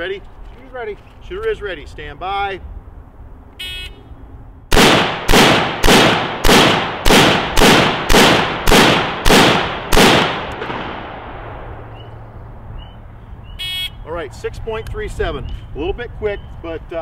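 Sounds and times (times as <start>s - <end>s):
rifle shots echoing: 4.7s - 12.0s.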